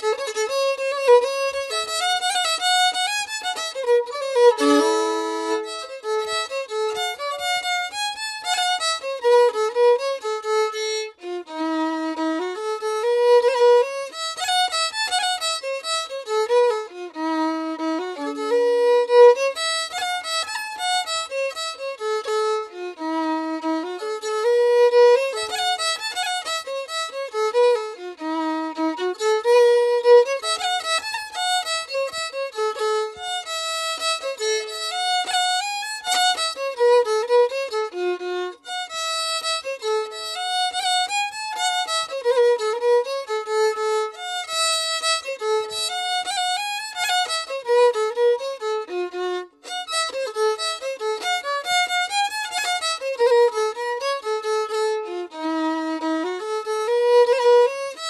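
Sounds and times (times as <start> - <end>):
solo violin melody: 0.0 - 58.0.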